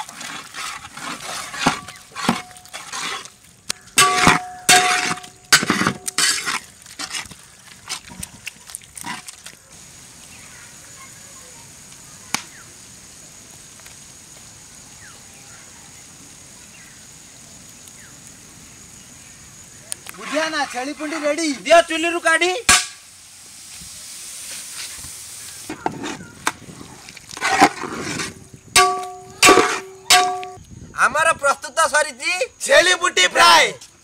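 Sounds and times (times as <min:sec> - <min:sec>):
metal spatula scraping a pot: 0:00.0 - 0:03.3, 0:04.0 - 0:07.3, 0:20.2 - 0:21.7, 0:27.3 - 0:30.4
steady low hiss: 0:09.6 - 0:34.0.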